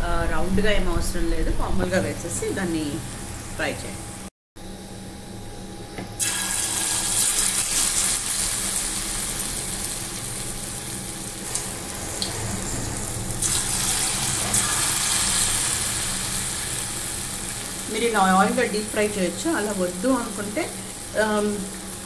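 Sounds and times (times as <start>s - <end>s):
batter sizzling in hot oil: 6.2s - 22.0s.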